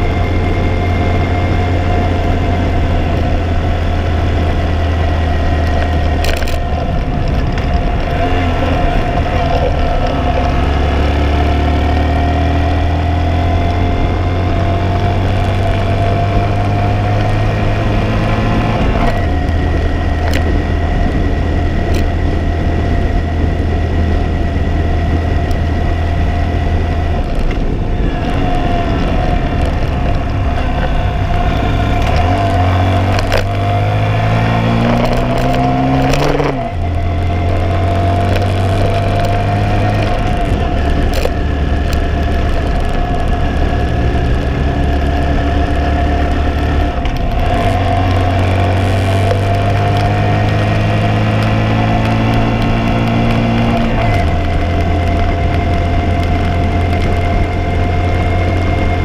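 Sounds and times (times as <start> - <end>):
motorcycle engine running: 0.0 - 59.0
road noise: 0.0 - 59.0
wind noise: 0.0 - 59.0.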